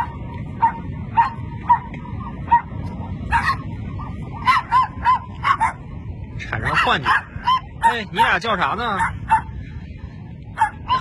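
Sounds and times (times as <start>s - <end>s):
small dogs barking: 0.0s - 5.9s, 6.6s - 9.6s, 10.5s - 11.0s.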